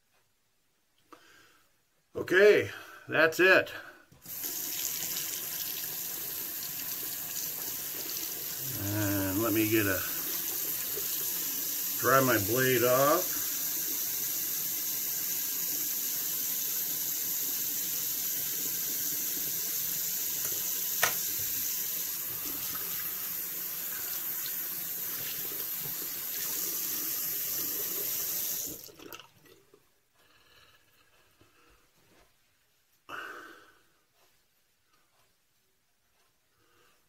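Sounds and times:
tap running into sink: 0:20.4 - 0:21.6.

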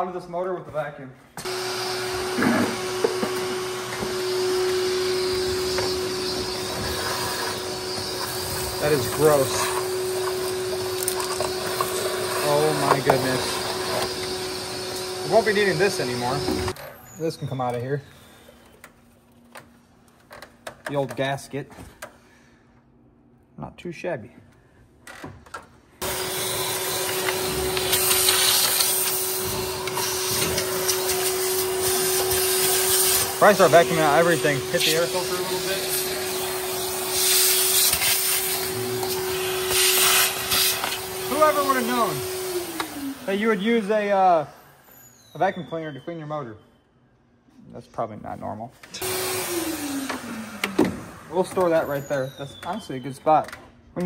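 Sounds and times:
vacuum cleaner running: 0:01.4 - 0:16.9, 0:26.0 - 0:45.9, 0:48.8 - 0:52.8
shop vac humming: 0:01.4 - 0:19.0, 0:26.0 - 0:46.5, 0:48.8 - 0:53.3.

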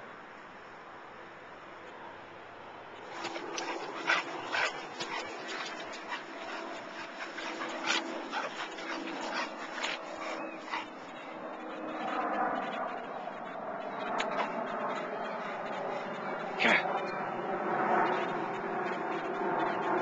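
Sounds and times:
dog whimpering: 0:03.3 - 0:10.9.

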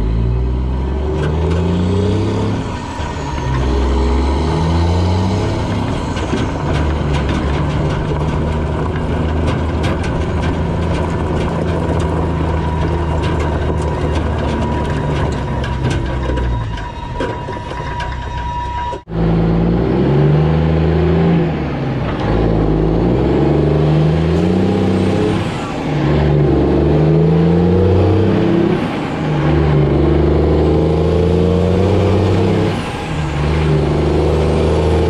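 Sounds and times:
diesel truck engine accelerating: 0:00.0 - 0:35.0
tyres crunching over gravel: 0:00.8 - 0:19.1.

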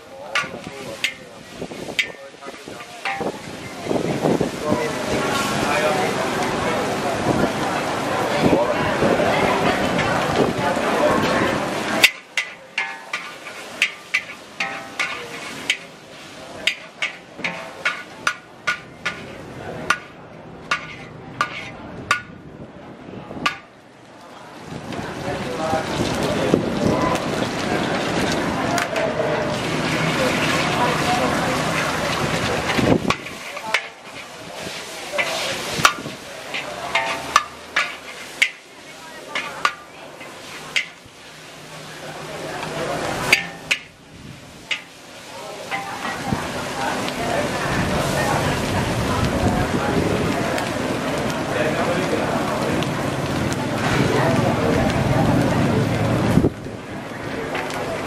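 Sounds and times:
noodles sizzling: 0:00.0 - 0:58.0
metal spatula clanking in wok: 0:00.2 - 0:03.8, 0:11.2 - 0:22.4, 0:23.4 - 0:23.7, 0:28.8 - 0:41.1, 0:42.6 - 0:44.0, 0:44.6 - 0:45.0, 0:45.6 - 0:46.3.

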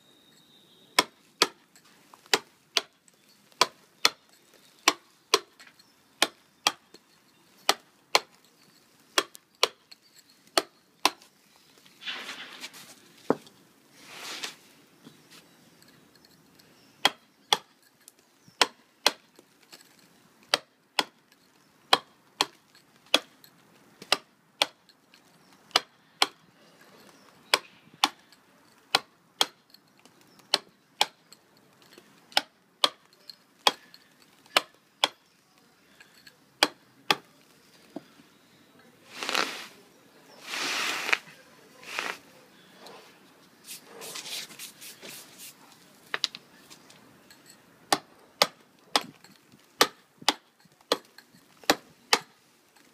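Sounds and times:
hammer striking chisel on stone: 0:01.0 - 0:01.6, 0:09.1 - 0:09.9, 0:17.0 - 0:17.8, 0:31.9 - 0:35.3, 0:36.2 - 0:37.3, 0:47.4 - 0:52.3
brief hissing noises: 0:12.0 - 0:13.0, 0:14.0 - 0:14.6, 0:39.1 - 0:39.8, 0:40.4 - 0:42.2.

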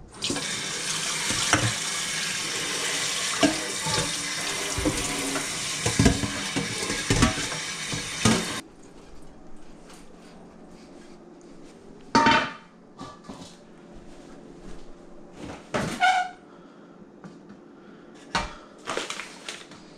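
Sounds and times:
tap water running into steel bowl: 0:00.2 - 0:08.6
steel bowl clanking: 0:03.3 - 0:08.6.

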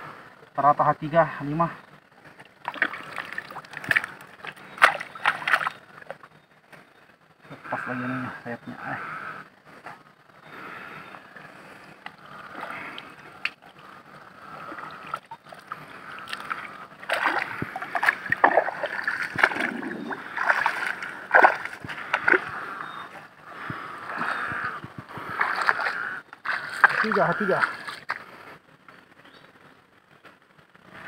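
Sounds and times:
hands sloshing in wet mud: 0:02.6 - 0:05.8, 0:14.6 - 0:22.7, 0:24.1 - 0:28.2.

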